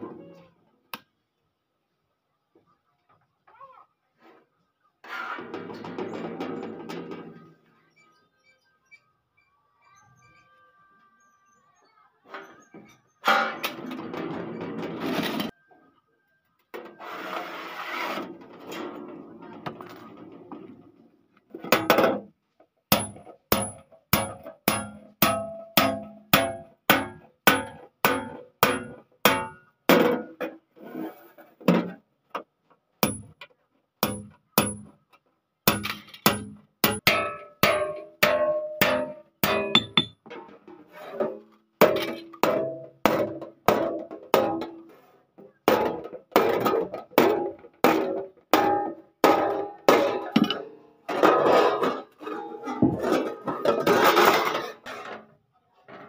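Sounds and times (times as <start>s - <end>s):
hammer striking chisel on steel: 22.9s - 29.6s, 34.0s - 34.9s, 35.7s - 40.2s.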